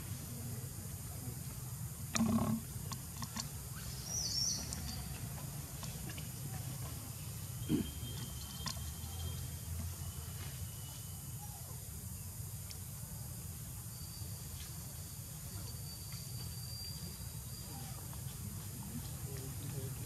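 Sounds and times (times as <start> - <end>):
faint ticks: 12.6 - 12.8.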